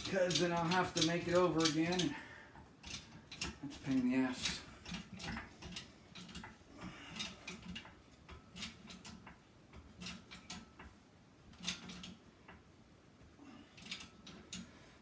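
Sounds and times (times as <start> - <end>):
hydraulic jack handle clicks and creaks: 4.4 - 6.6.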